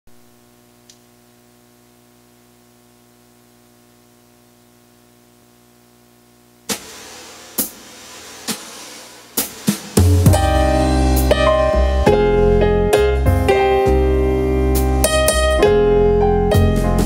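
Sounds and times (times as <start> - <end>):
faint electrical hum: 0.1 - 16.4
keyboard percussion accompaniment: 8.5 - 17.0.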